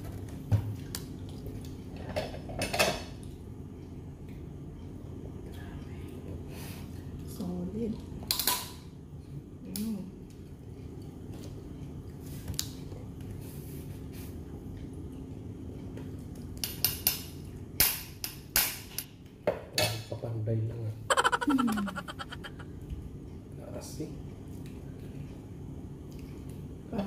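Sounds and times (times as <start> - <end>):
person murmuring mm: 21.1 - 22.6.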